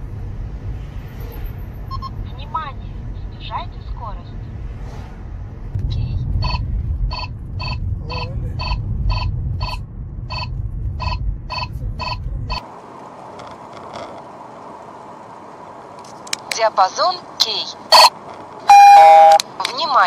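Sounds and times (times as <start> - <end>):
car road noise: 0.0 - 20.0
short alert beeps: 6.0 - 12.2, 17.9 - 18.1, 18.7 - 19.4.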